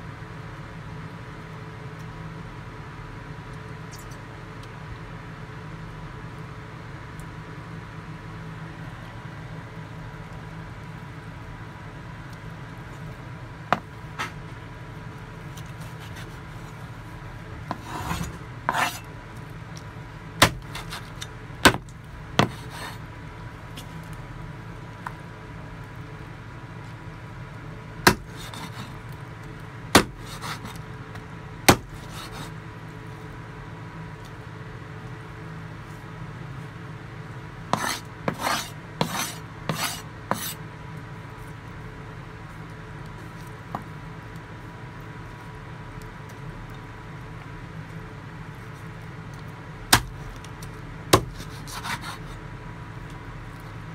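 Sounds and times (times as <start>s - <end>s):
scraping and rubbing: 15.5s - 19.1s, 20.4s - 21.3s, 22.4s - 23.1s, 28.1s - 29.0s, 30.0s - 30.8s, 31.7s - 32.6s, 37.7s - 40.6s, 51.2s - 52.4s
cleaver chopping on wooden board: 17.7s - 19.0s, 20.4s - 22.9s, 28.0s - 28.8s, 30.0s - 30.8s, 31.7s - 32.5s, 37.8s - 40.6s, 49.9s - 50.2s, 51.1s - 52.1s.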